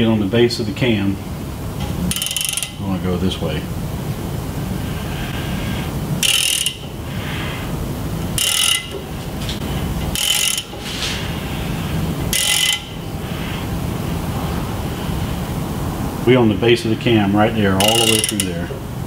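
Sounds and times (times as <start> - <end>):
steady low rumble: 0.0 - 19.0
ratchet wrench clicking: 2.1 - 2.8, 6.2 - 7.0, 8.4 - 9.0, 10.1 - 11.4, 12.3 - 13.0, 17.8 - 18.8.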